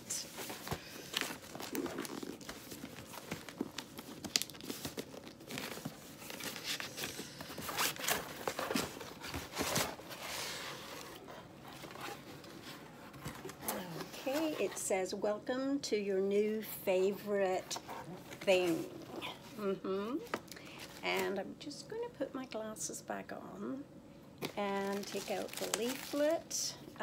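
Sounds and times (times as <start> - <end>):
cardboard box tearing and crinkling: 24.8 - 26.4.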